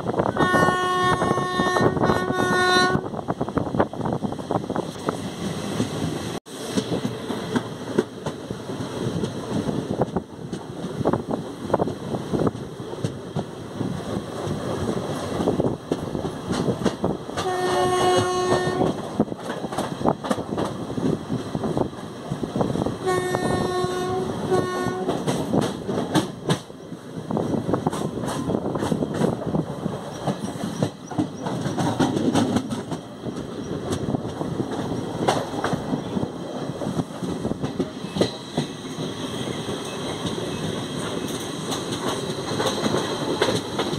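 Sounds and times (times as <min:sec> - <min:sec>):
train horn: 0:00.3 - 0:03.1, 0:17.4 - 0:19.0, 0:23.0 - 0:25.3
train wheels rattling: 0:01.1 - 0:43.9
wheels clicking over rail joints: 0:09.2 - 0:22.5, 0:27.8 - 0:39.1, 0:39.7 - 0:43.9.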